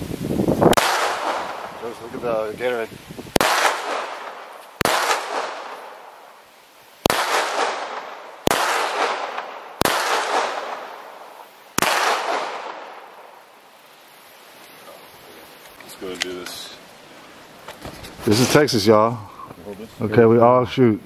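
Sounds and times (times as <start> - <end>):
gunshots with echo: 0.7 - 2.0, 3.4 - 5.8, 7.1 - 11.0, 11.8 - 13.0.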